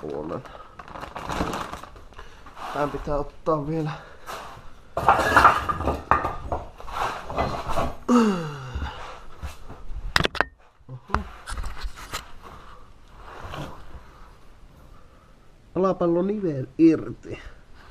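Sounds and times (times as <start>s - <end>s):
metal tools clinking and clattering: 5.0s - 6.5s.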